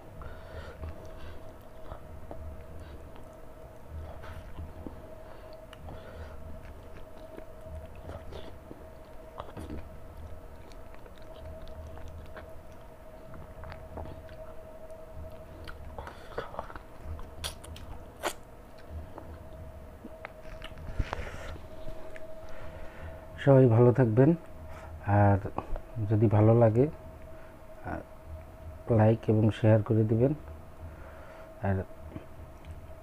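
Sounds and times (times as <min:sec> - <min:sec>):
person chewing food: 0:00.1 - 0:23.1.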